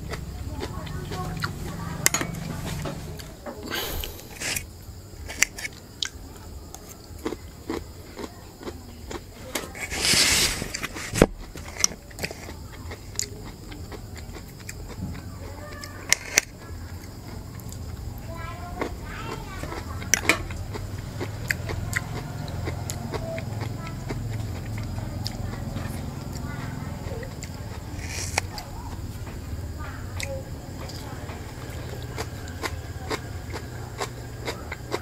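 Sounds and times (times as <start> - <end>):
man biting and chewing food: 0.0 - 4.7, 6.8 - 15.2, 27.4 - 28.5.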